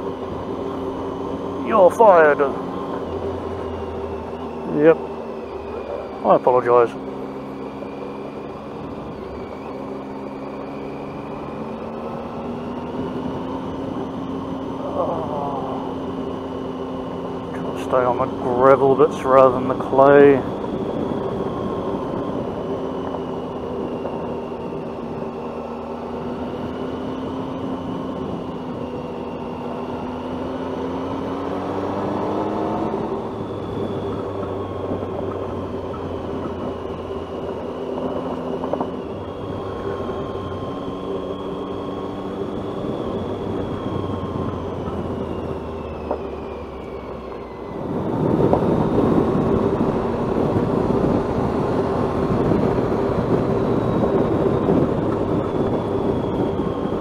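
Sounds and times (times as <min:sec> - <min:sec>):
motorcycle engine revving: 0:00.0 - 0:57.0
tyre and wind noise: 0:31.0 - 0:57.0.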